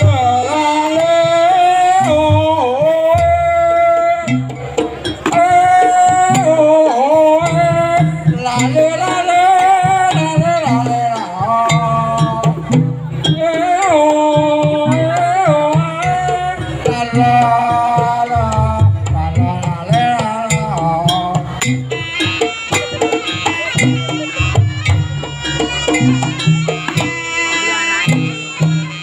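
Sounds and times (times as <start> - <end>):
drum and gong beats: 0.0 - 29.0
wavering melody line: 20.7 - 29.0.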